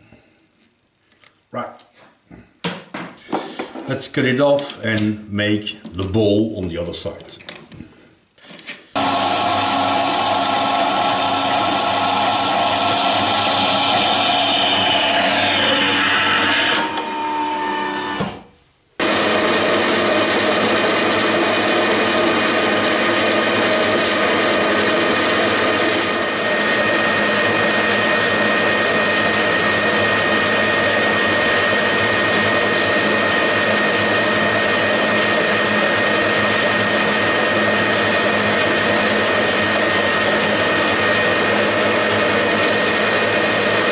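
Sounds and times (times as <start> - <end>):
steady high whine: 9.0 - 18.3, 19.0 - 43.5
band saw cutting metal: 9.0 - 18.4, 19.0 - 43.9
drill boring into metal: 9.0 - 18.4, 19.0 - 43.9
metal lathe running: 9.0 - 18.4, 19.0 - 43.9.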